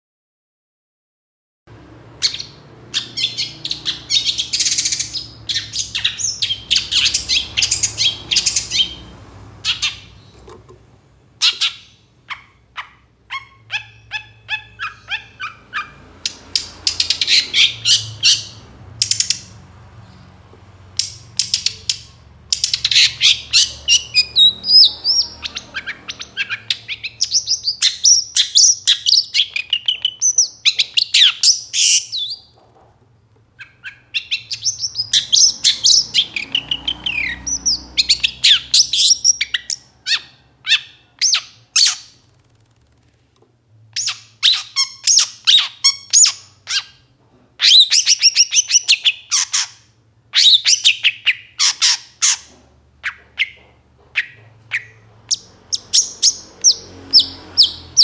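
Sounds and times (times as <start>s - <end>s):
bird harsh chattering: 2.2s - 10.4s, 11.4s - 19.5s, 21.0s - 32.6s, 33.6s - 42.3s.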